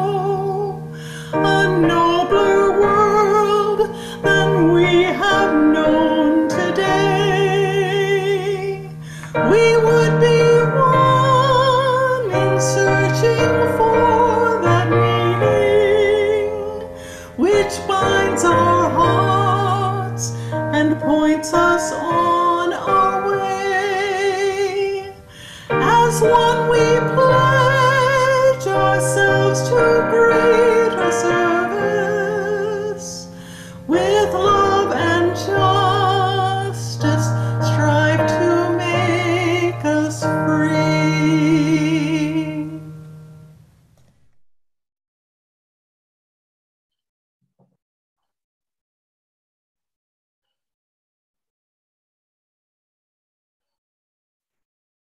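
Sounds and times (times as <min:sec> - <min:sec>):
woman singing a hymn: 0:00.0 - 0:42.9.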